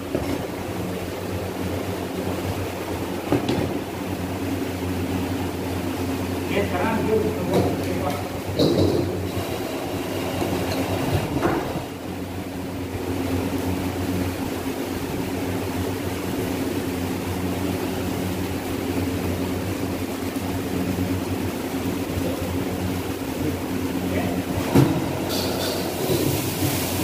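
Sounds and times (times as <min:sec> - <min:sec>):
machine droning hum: 0:00.0 - 0:27.0.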